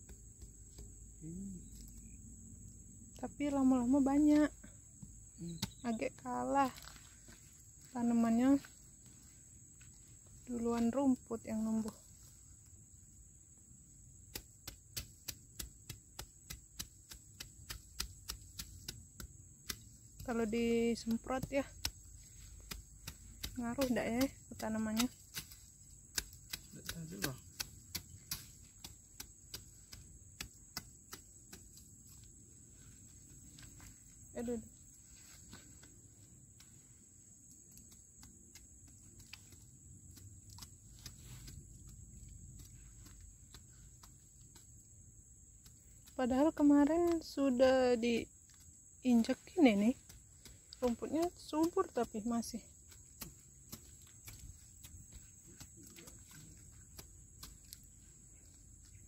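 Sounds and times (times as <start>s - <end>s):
machete chopping into dry soil: 5.0s - 6.0s, 14.2s - 32.4s, 48.5s - 58.5s.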